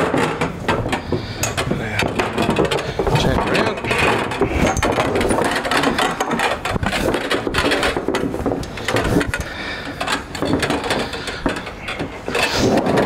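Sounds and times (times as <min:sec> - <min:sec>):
copper pipe clattering on wood: 0:00.0 - 0:13.0.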